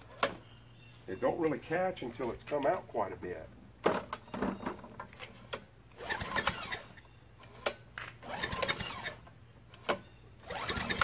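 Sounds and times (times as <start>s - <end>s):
engine pull-starter whirring: 5.3s - 11.0s.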